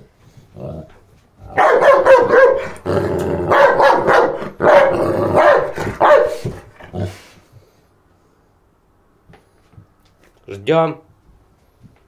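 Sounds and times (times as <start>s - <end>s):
dog barking and growling: 0.5s - 7.4s.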